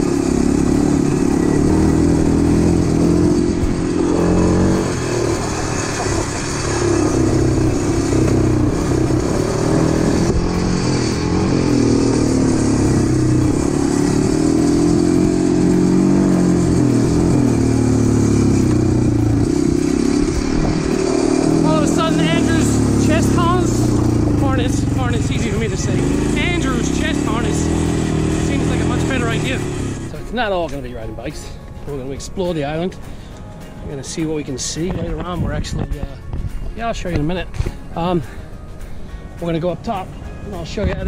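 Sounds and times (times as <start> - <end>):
quad bike engine running: 0.0 - 30.7.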